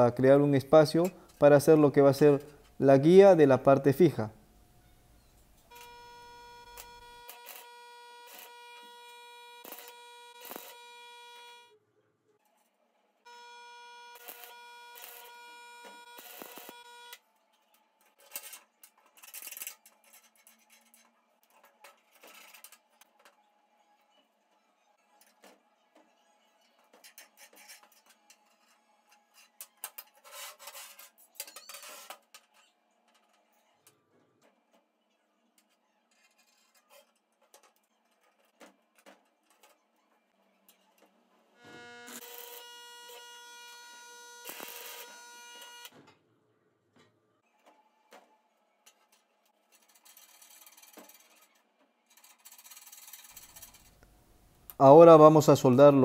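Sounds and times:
metal scraping: 49.6s - 54.0s.

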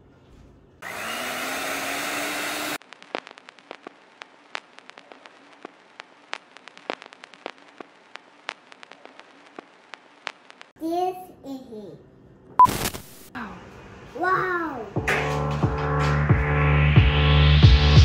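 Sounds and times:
electric hand mixer running: 0.8s - 2.8s
sharp clicks and crackles: 2.8s - 10.8s.

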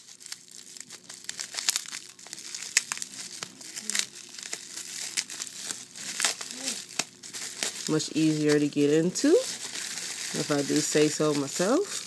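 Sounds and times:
bubble wrap crinkling: 0.0s - 12.0s.

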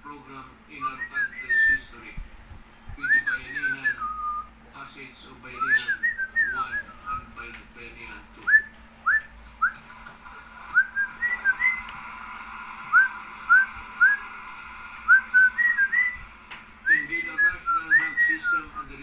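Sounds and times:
cockatiel whistling: 5.6s - 7.0s, 10.7s - 12.0s, 15.1s - 16.2s.

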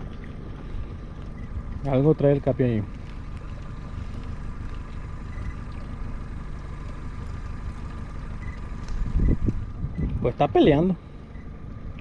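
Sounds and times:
faint constant hum: 0.0s - 12.0s
low boat rumble: 0.0s - 12.0s.

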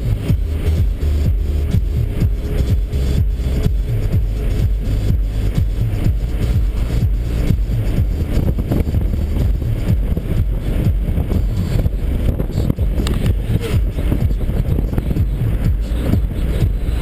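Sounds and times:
car cabin road and engine rumble: 0.0s - 17.0s.

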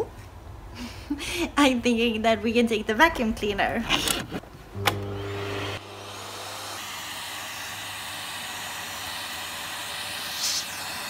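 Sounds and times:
vacuum cleaner running: 4.7s - 11.0s.

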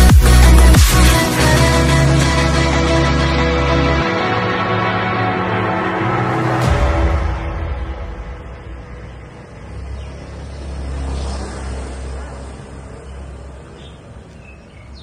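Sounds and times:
vehicle passing rumble: 3.2s - 15.0s.

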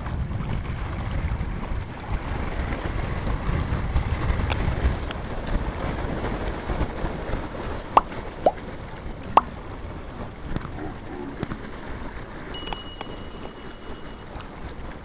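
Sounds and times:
wind on microphone: 0.0s - 12.5s
sea noise: 7.0s - 14.2s
rising water drop pops: 7.9s - 8.6s, 9.3s - 9.6s.

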